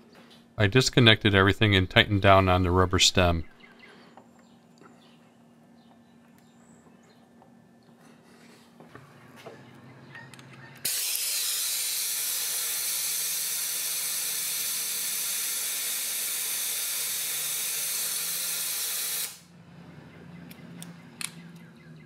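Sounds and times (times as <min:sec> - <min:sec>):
compressed air hissing: 0:10.8 - 0:19.5
light handling clicks: 0:20.4 - 0:21.7.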